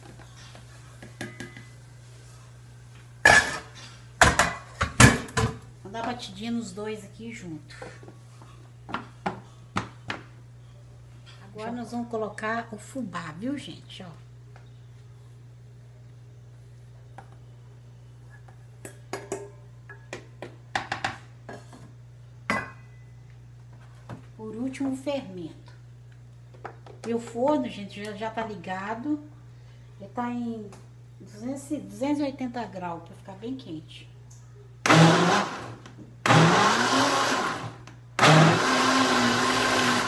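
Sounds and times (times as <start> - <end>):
blender motor pulsing: 34.8 - 40.0.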